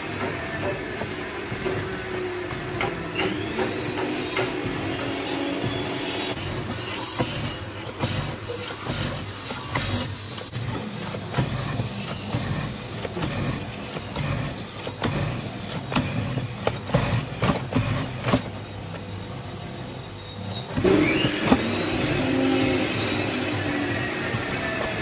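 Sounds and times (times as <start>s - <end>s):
mortising machine motor hum: 0.0s - 25.0s
bit knocking and cutting wood: 0.1s - 18.5s.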